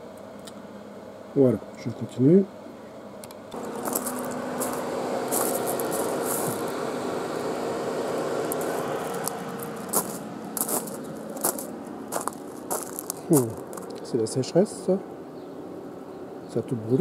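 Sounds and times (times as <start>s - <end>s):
air conditioning compressor humming: 0.0s - 17.0s
footsteps on gravel: 3.6s - 14.1s.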